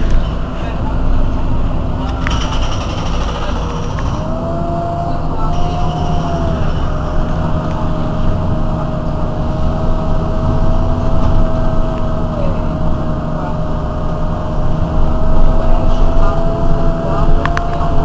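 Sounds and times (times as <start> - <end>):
bus diesel engine idling: 0.0 - 18.0
sharp clicks: 2.0 - 4.3.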